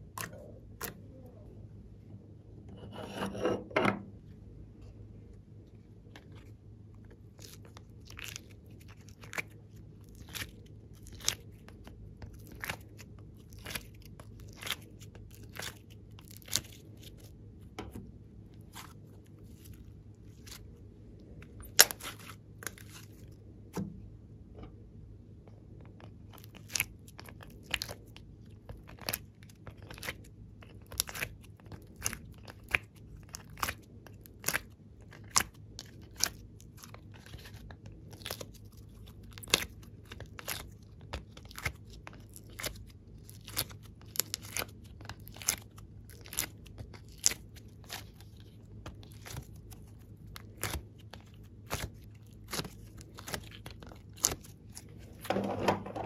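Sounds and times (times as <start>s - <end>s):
sticky clay clicks and pops: 28.7s - 54.9s.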